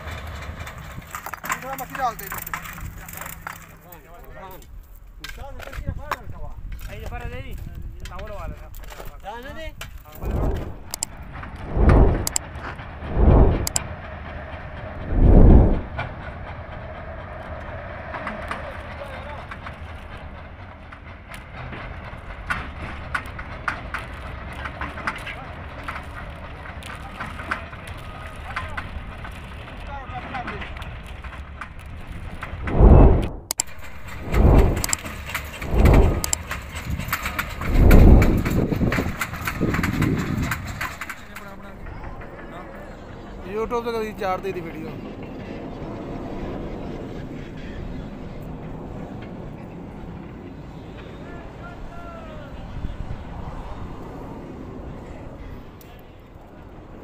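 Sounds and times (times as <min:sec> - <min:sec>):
small crackles: 0:00.0 - 0:13.8, 0:18.4 - 0:42.6
wind buffeting microphone: 0:00.0 - 0:57.0
machinery humming: 0:10.1 - 0:23.5, 0:32.5 - 0:55.8.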